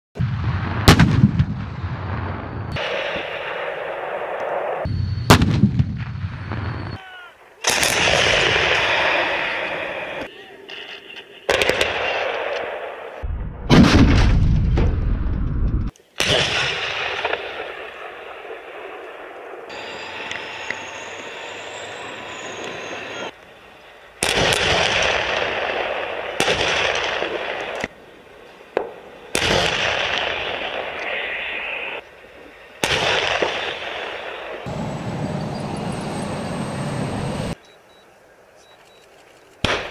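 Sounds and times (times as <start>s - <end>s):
artillery bangs: 0.2s - 4.4s, 5.2s - 7.0s, 13.6s - 17.9s
artillery gun firing: 0.2s - 6.9s, 7.6s - 9.7s, 11.5s - 12.9s, 13.6s - 17.9s, 24.2s - 27.9s, 29.3s - 30.9s, 32.8s - 34.4s, 39.6s - 39.9s
dense crackling noise and rumble: 10.7s - 37.6s
loud rushing blast: 32.8s - 37.6s.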